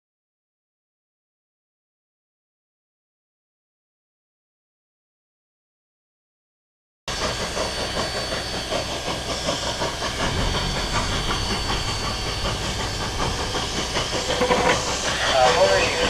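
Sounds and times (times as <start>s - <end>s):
steam hissing: 7.1s - 16.0s.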